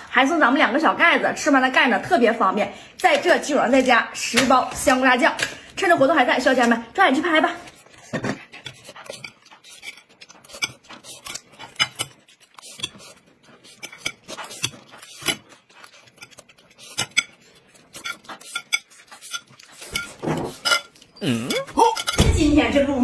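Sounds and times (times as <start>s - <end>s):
spoon scraping ceramic plate: 7.7s - 22.2s.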